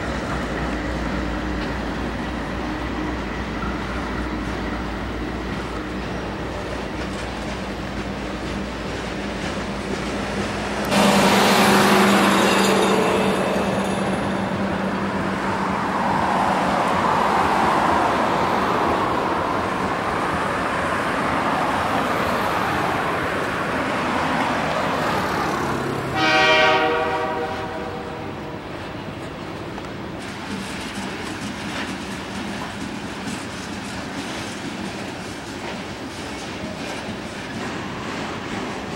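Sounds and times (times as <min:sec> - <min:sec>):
freight train rolling on rails: 0:00.0 - 0:38.9
car passing on road: 0:10.9 - 0:12.7, 0:14.2 - 0:28.1
locomotive horn blast: 0:10.9 - 0:13.8, 0:26.1 - 0:28.8.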